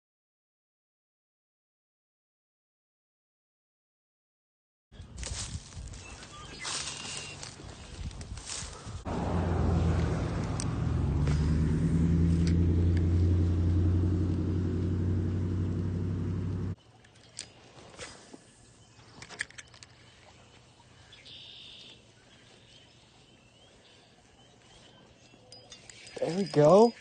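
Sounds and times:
engine loud low drone: 8.5 - 16.8.

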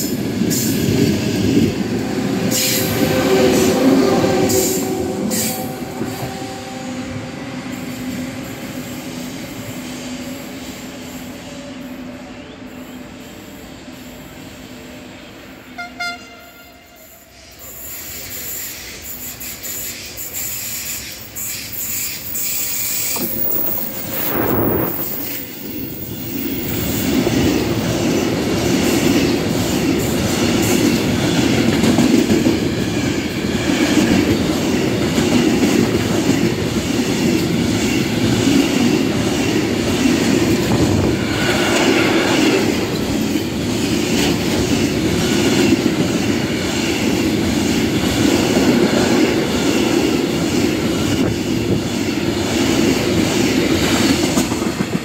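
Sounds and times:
train rumble: 0.0 - 55.0
freight train wheels clicking: 17.0 - 55.0.

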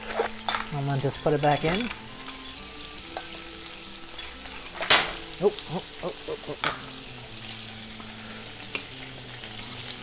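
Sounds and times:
rice sizzling in a pan: 0.0 - 10.0.

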